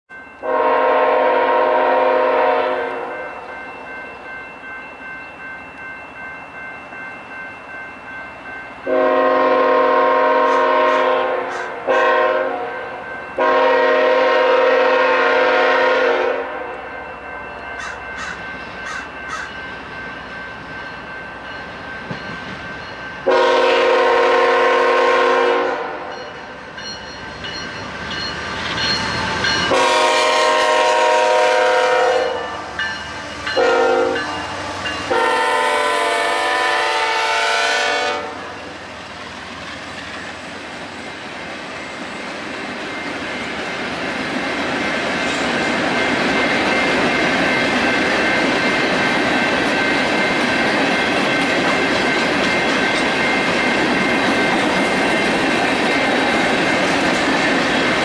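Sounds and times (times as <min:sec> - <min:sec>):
train running: 0:00.1 - 0:58.0
train air horn blasts: 0:00.4 - 0:03.4, 0:08.8 - 0:16.9, 0:23.2 - 0:26.3, 0:29.7 - 0:32.7, 0:33.5 - 0:38.7.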